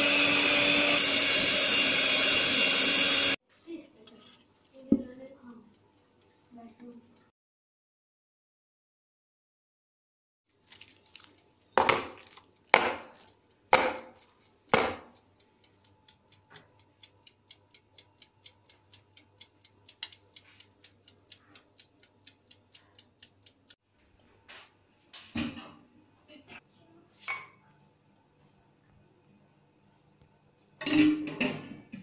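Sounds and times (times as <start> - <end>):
oven timer ticking: 4.8 - 7.3, 12.5 - 24.3.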